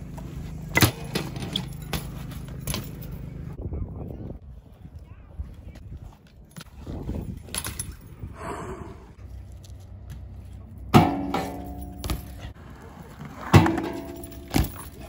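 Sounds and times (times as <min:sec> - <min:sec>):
bike clanking on metal rail: 0:00.7 - 0:03.4, 0:10.9 - 0:12.6, 0:13.4 - 0:15.0.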